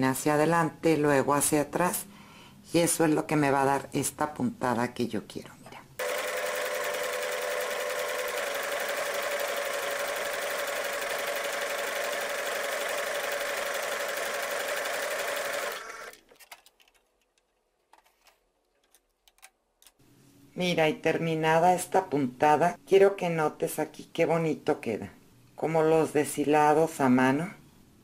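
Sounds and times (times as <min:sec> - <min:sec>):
sewing machine running: 0:06.0 - 0:16.2.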